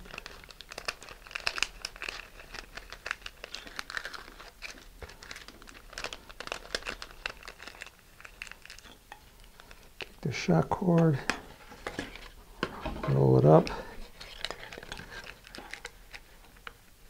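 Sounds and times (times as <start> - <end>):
plastic streamer crinkling: 0.0 - 12.4, 13.0 - 17.0.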